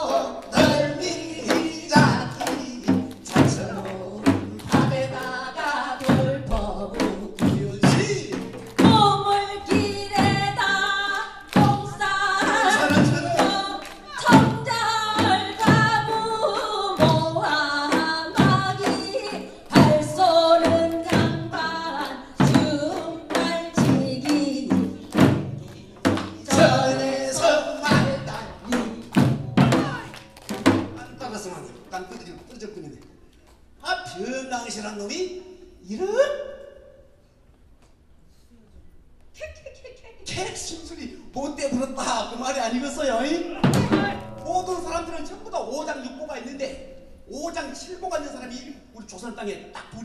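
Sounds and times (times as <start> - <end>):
person singing folk song: 0.0 - 30.0
barrel drum struck with stick: 17.9 - 31.1, 43.6 - 45.2.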